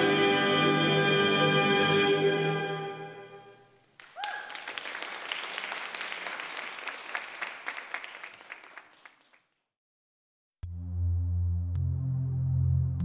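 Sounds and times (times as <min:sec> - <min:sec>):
music: 0:00.0 - 0:03.7, 0:10.6 - 0:13.0
high cheer: 0:04.0 - 0:08.8
audience applauding: 0:04.0 - 0:09.6.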